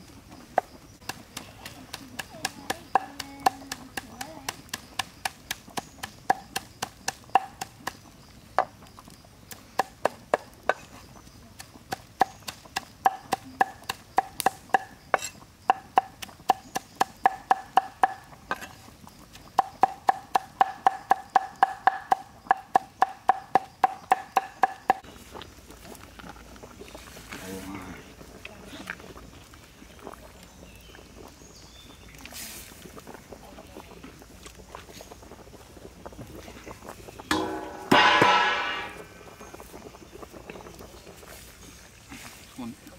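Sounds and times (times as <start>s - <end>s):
cleaver chopping on wooden board: 11.9s - 18.6s, 19.6s - 25.0s.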